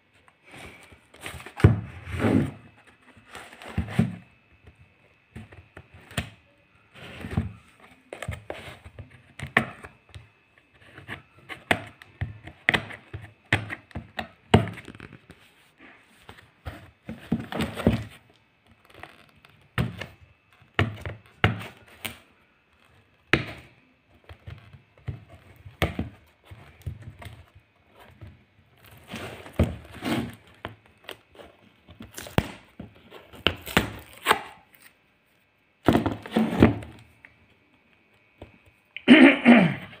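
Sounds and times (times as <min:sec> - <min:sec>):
packing tape tearing: 0:33.4 - 0:35.0.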